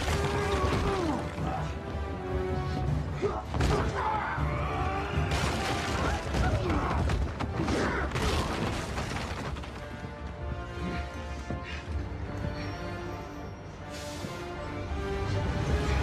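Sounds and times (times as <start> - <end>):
dramatic music score: 0.0 - 16.0.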